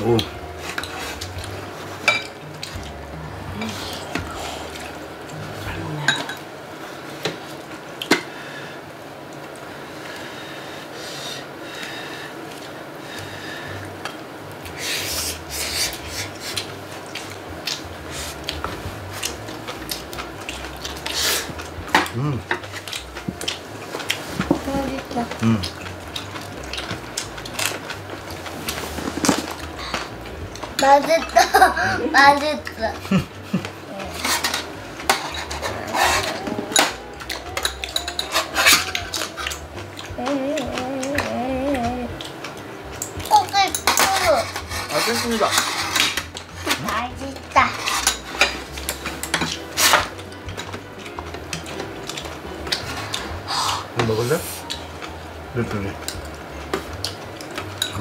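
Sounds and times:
chewing food: 15.3s - 31.3s, 32.2s - 58.0s
crunchy chewing: 25.0s - 30.8s
utensils clicking against bowls: 33.6s - 58.0s.

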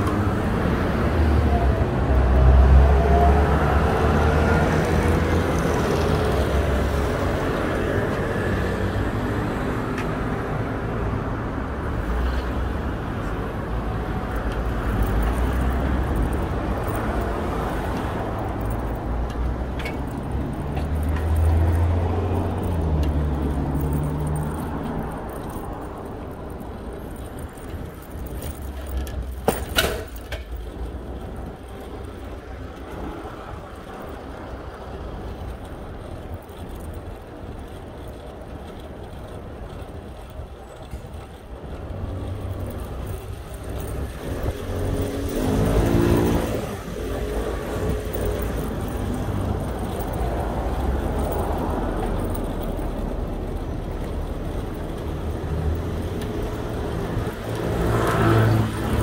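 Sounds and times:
road traffic rumble: 0.0s - 59.0s
motor vehicle passing close: 43.6s - 59.0s.

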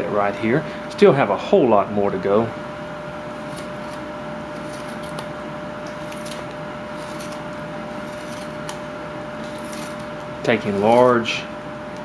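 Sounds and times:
room hum with high tone: 0.0s - 12.0s
knife scraping wood shavings: 3.4s - 11.4s.

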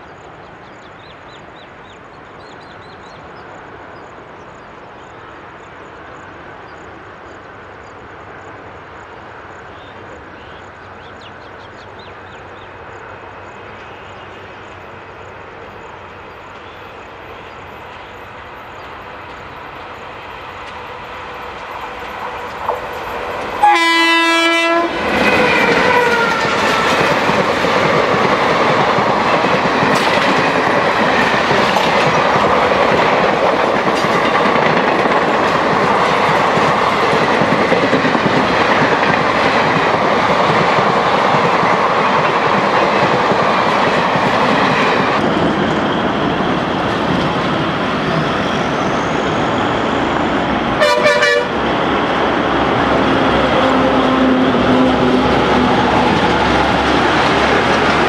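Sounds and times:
train wheels clattering on rails: 17.8s - 58.0s
locomotive horn blast: 23.6s - 26.6s, 50.8s - 51.6s.

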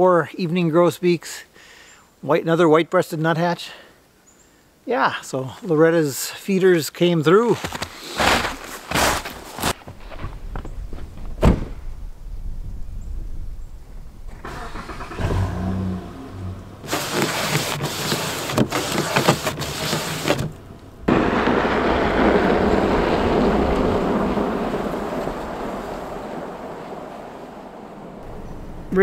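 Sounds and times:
car engine starting and running: 14.1s - 29.0s
wiper scraping frosty window: 16.8s - 26.4s
steady rushing noise: 20.6s - 29.0s.

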